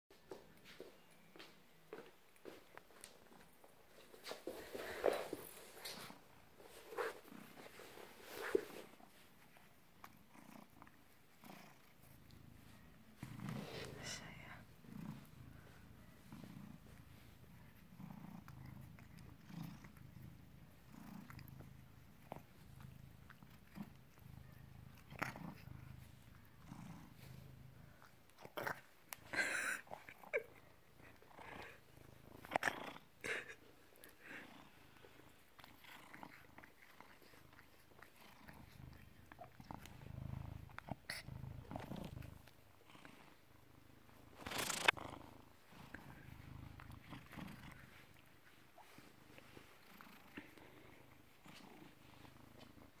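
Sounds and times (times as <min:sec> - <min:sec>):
cat purring: 0:00.2 - 0:53.0
rustling: 0:44.2 - 0:45.0.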